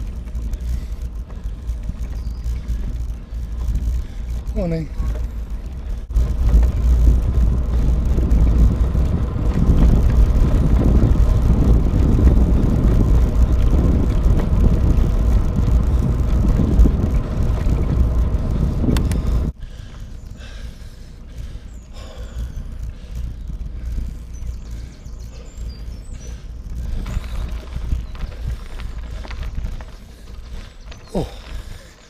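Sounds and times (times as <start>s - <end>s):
bicycle tyre and road noise: 0.0s - 32.0s
wind noise on microphone: 0.0s - 32.0s
sharp clicks: 18.9s - 20.4s.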